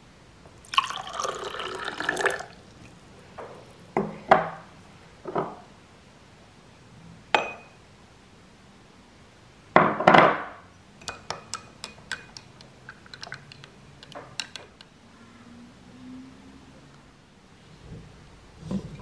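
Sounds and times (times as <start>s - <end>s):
spoon clinking against glass: 7.4s - 7.8s, 11.0s - 12.5s.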